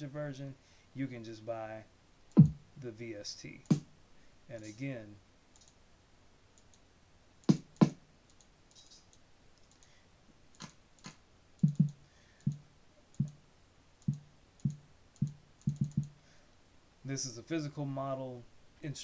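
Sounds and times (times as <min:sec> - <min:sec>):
mouse clicks: 0:08.3 - 0:13.4, 0:14.0 - 0:16.2.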